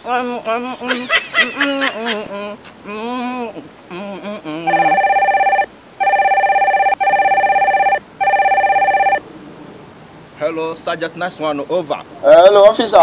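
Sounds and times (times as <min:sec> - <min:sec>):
phone ringtone trilling: 0:04.7 - 0:09.2.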